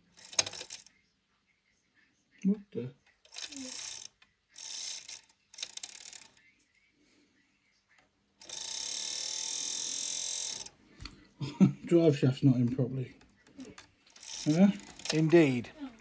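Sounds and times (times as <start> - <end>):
model train motor running: 0.0 - 0.8, 3.3 - 6.3, 8.4 - 10.7, 13.6 - 15.6.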